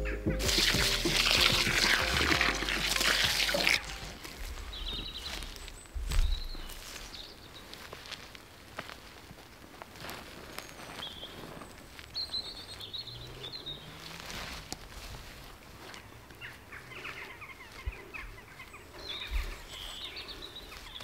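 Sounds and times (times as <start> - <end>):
songbirds twittering: 0.0 - 8.7, 10.3 - 21.0
soil scratching and crumbling: 0.4 - 17.3.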